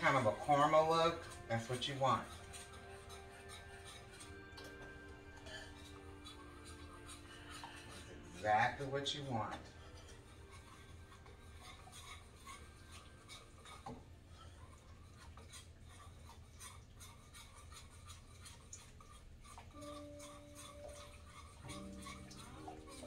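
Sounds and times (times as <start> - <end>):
whisk scraping in a pot: 0.0 - 23.0.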